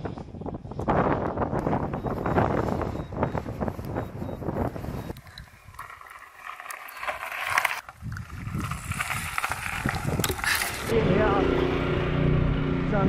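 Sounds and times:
bikes knocking and rattling: 0:00.2 - 0:10.9
tyres crunching on gravel: 0:04.5 - 0:10.9.

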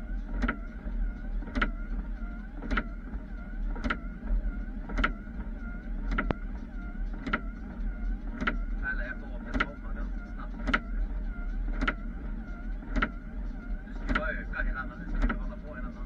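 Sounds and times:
low engine drone: 0:00.0 - 0:16.0
wiper motor whine: 0:00.0 - 0:16.0
windscreen wipers knocking: 0:08.3 - 0:08.7, 0:09.4 - 0:09.9, 0:10.5 - 0:11.0, 0:11.7 - 0:12.1, 0:12.8 - 0:13.2, 0:13.9 - 0:15.6.

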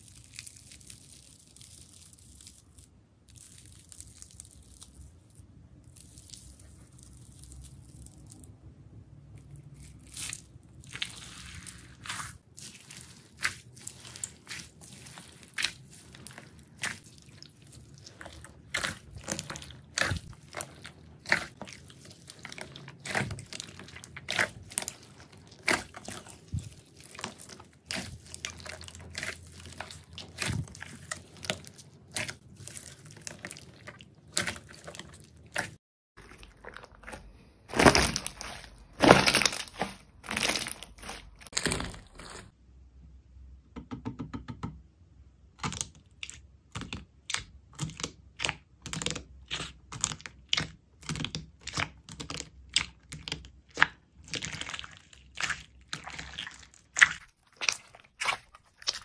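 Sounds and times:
slime squelching and popping: 0:09.4 - 0:42.5, 0:45.5 - 0:59.0.

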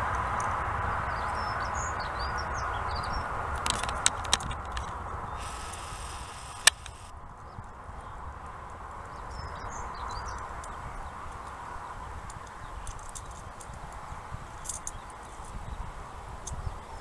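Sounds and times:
wind buffeting microphone: 0:00.0 - 0:17.0
distant jet engine rushing: 0:05.2 - 0:07.1.

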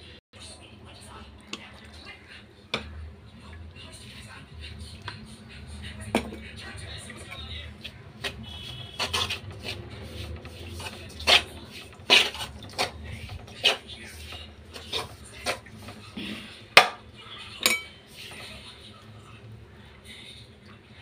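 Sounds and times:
hand rubbing flour mixture: 0:06.6 - 0:16.7.

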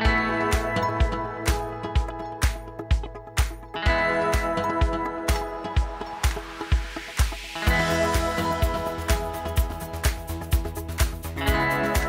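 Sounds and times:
held chords: 0:00.0 - 0:12.0
kick drum beat: 0:00.0 - 0:12.0.

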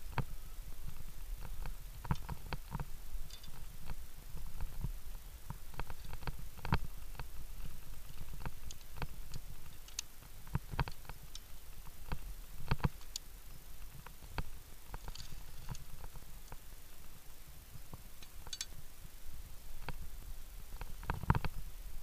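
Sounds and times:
carabiners clicking on steel cable: 0:18.2 - 0:18.8.

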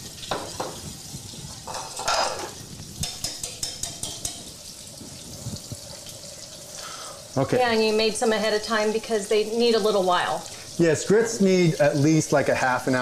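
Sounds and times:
fish frying in oil: 0:00.0 - 0:13.0
whisk scraping metal saucepan: 0:01.7 - 0:04.5
metal clinks against pot: 0:01.7 - 0:04.6.

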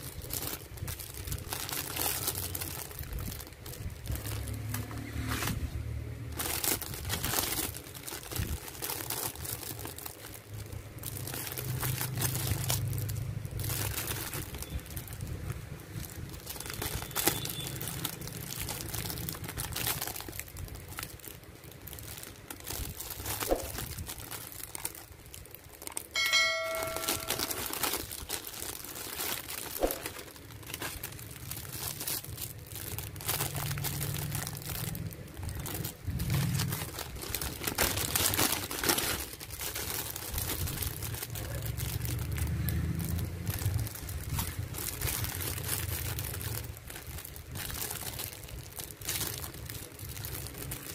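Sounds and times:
plastic bags crinkling: 0:00.0 - 0:50.9
brief ringing ding: 0:26.2 - 0:27.6.

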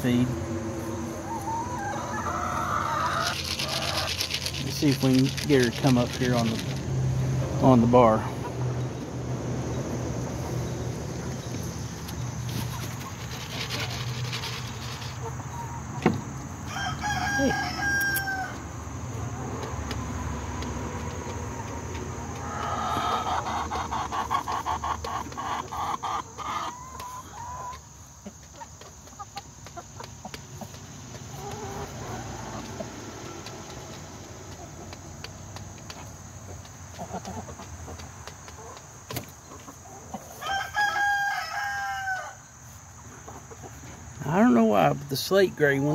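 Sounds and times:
chicken clucking: 0:00.1 - 0:06.8, 0:09.7 - 0:16.0, 0:16.7 - 0:45.5
rooster crowing: 0:01.2 - 0:04.0, 0:16.6 - 0:18.6, 0:40.4 - 0:42.5.

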